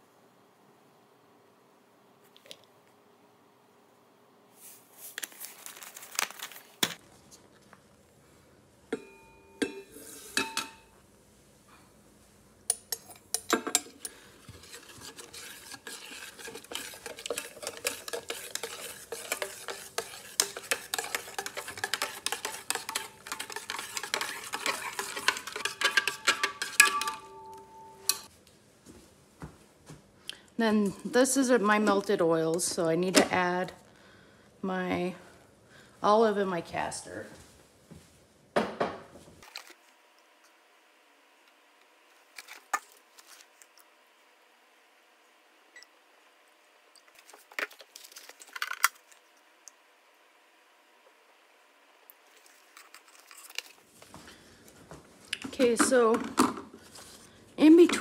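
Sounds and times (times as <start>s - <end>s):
utensil clinking and scraping steel pot: 12.7s - 28.3s.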